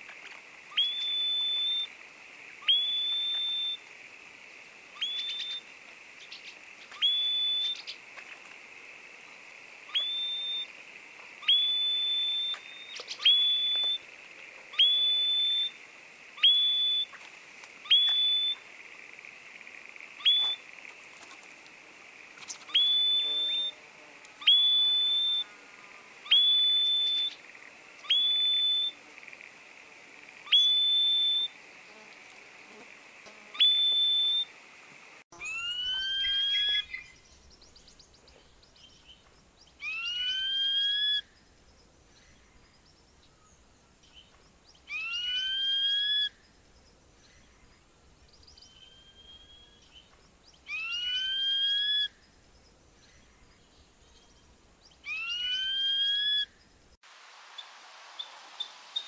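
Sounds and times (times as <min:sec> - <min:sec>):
steady high hiss: 0:00.0 - 0:59.0
whistled bird call: 0:00.7 - 0:01.9, 0:02.6 - 0:03.8, 0:05.0 - 0:05.6, 0:06.9 - 0:08.0, 0:09.9 - 0:10.7, 0:11.4 - 0:14.0, 0:14.7 - 0:15.8, 0:16.4 - 0:17.1, 0:17.8 - 0:18.6, 0:20.2 - 0:20.6, 0:22.7 - 0:23.8, 0:24.4 - 0:25.5, 0:26.2 - 0:27.4, 0:28.0 - 0:29.0, 0:30.5 - 0:31.6, 0:33.6 - 0:34.5, 0:35.4 - 0:37.2, 0:39.8 - 0:41.3, 0:44.9 - 0:46.4, 0:48.6 - 0:49.9, 0:50.7 - 0:52.2, 0:55.0 - 0:56.5.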